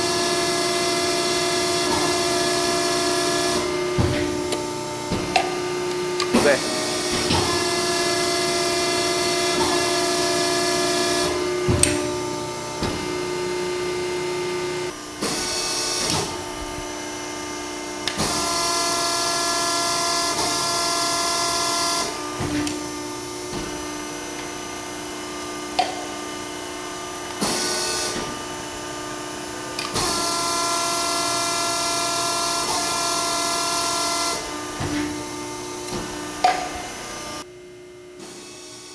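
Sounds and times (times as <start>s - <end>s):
hydraulic pump hum and whine: 0.0s - 38.9s
sharp machine clunk: 3.4s - 7.9s.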